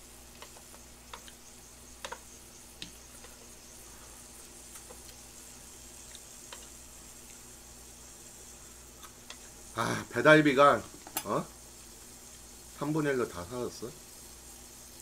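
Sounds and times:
meat sizzling on a grill pan: 0.0s - 15.0s
chopsticks clicking against pan: 4.7s - 5.2s, 6.0s - 7.4s.

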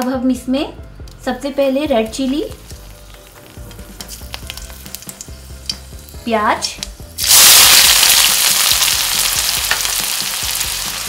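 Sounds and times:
chillies crackling in hot oil: 1.0s - 11.0s
onions sizzling in oil: 2.2s - 11.0s.

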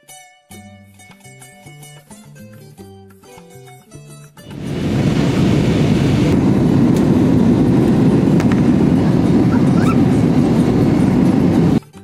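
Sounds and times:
jet cabin engine rumble: 4.5s - 11.8s.

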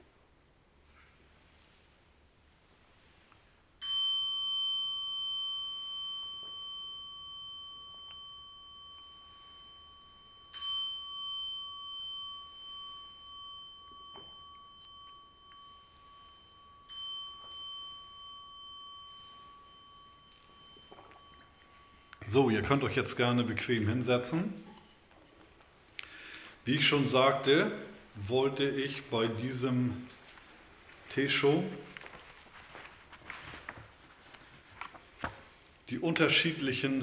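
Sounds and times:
bowl bell ringing: 3.8s - 25.0s.

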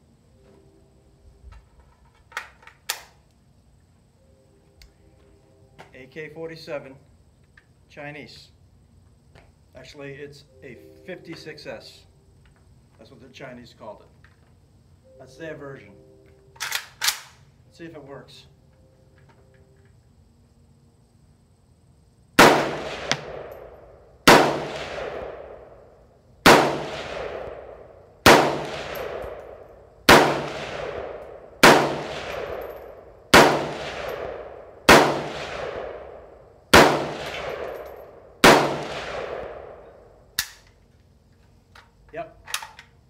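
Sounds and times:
sharp click: 2.3s - 3.2s, 40.4s - 40.8s
rifle shots echoing: 22.4s - 40.6s.

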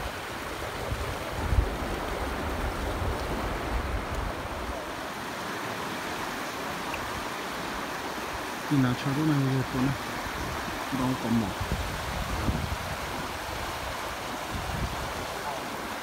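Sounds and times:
wind rumble on microphone: 0.0s - 5.0s, 10.2s - 15.9s
river rapids rushing: 0.0s - 16.0s.

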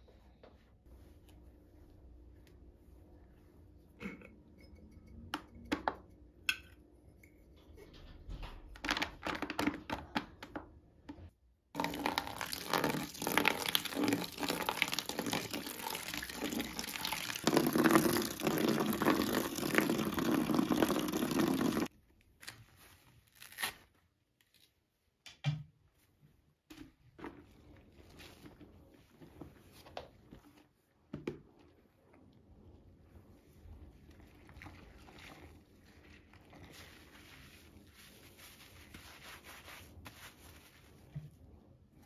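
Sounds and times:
items knocking in plastic bucket: 7.8s - 13.1s
water pouring into plastic bucket: 11.8s - 21.9s.

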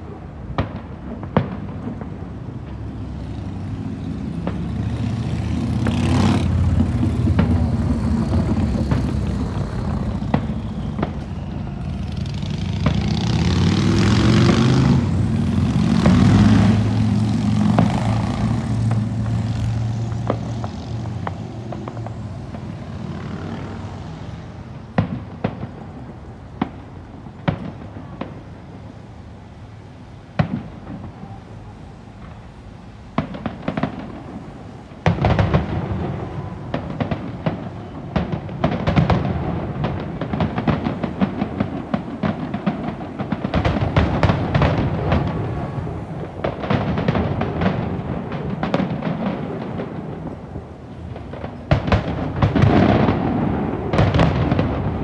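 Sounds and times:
firework bangs and crackle: 0.0s - 55.0s.

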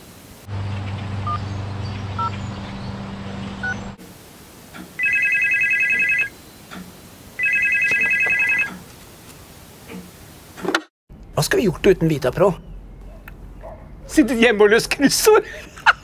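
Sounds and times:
steady low hum: 0.2s - 4.7s
telephone ringing: 5.0s - 6.3s, 7.4s - 8.8s.

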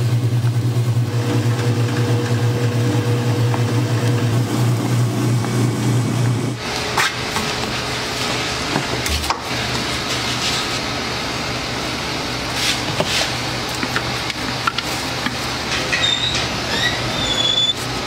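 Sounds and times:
ice cream freezer humming: 0.0s - 18.0s
spatula scraping steel barrel: 12.5s - 18.0s.

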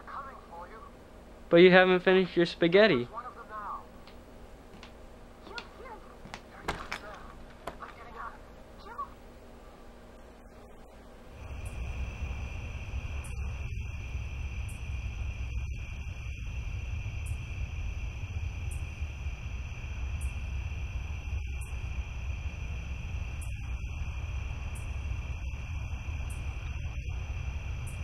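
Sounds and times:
steady low rumble: 0.0s - 28.0s
cricket trill: 10.9s - 28.0s
faint short insect chirp: 11.4s - 28.0s.

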